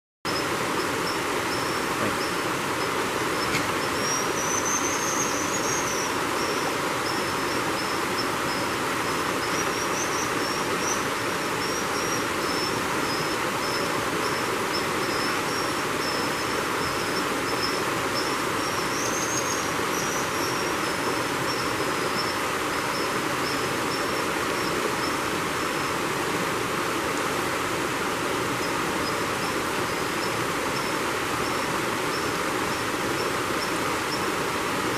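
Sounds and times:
high thin bird calls: 0.3 - 6.6
creek water rushing over rocks: 0.3 - 34.9.

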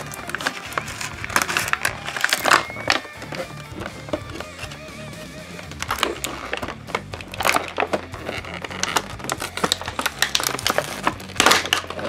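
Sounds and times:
plastic packaging crinkling: 0.0 - 4.8, 5.6 - 12.0
quiet background music: 0.0 - 12.0.

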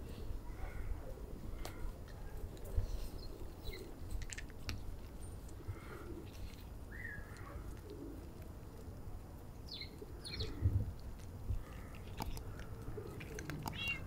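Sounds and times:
cats chewing dry kibble: 1.4 - 14.0
birds chirping: 4.7 - 8.1, 9.6 - 10.6, 11.6 - 14.0.

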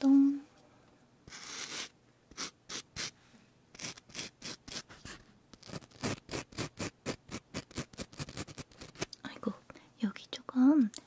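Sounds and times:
razor scraping strokes: 1.3 - 3.2, 3.8 - 9.1.

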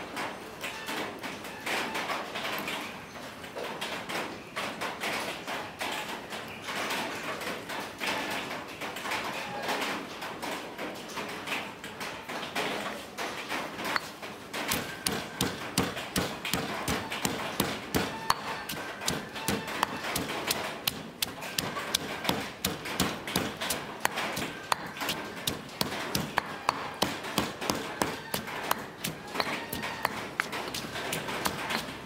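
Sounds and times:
stone pestle pounding in mortar: 14.7 - 32.0.

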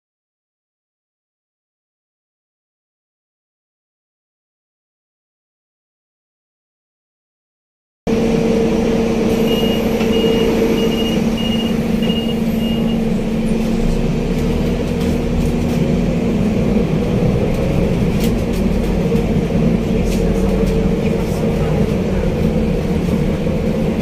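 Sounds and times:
bus engine running: 8.1 - 24.0
short electronic beeps: 9.3 - 13.2.

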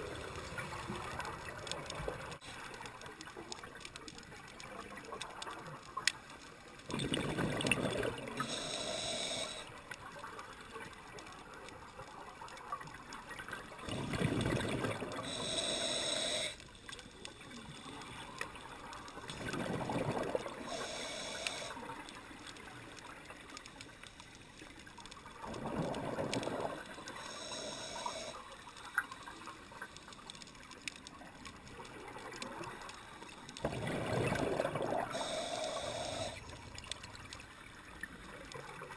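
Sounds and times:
exhaled bubbles underwater: 6.8 - 9.6, 13.4 - 16.6, 17.6 - 22.1, 25.3 - 28.4, 33.6 - 38.9
regulator hiss: 8.3 - 9.8, 15.2 - 16.6, 20.6 - 21.9, 27.0 - 28.8, 35.0 - 36.6.

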